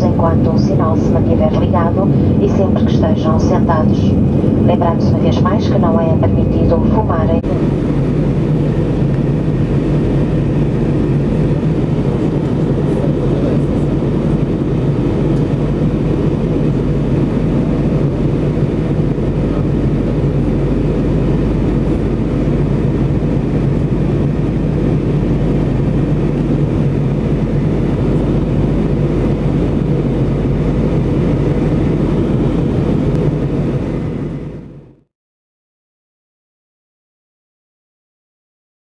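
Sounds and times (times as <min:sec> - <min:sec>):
aircraft engines droning: 0:00.0 - 0:35.0
constant low hum: 0:00.0 - 0:35.0
air rushing: 0:01.9 - 0:05.3.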